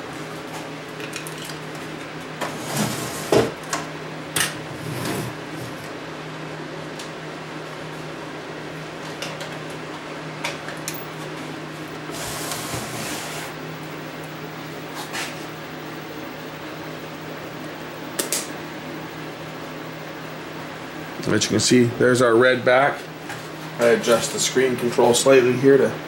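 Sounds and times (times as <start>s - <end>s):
steady low hum: 10.8s - 26.0s.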